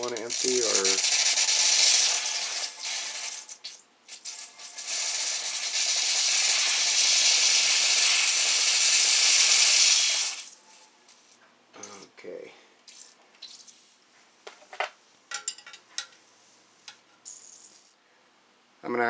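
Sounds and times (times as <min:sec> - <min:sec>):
pressurized water hissing: 0:00.0 - 0:10.6.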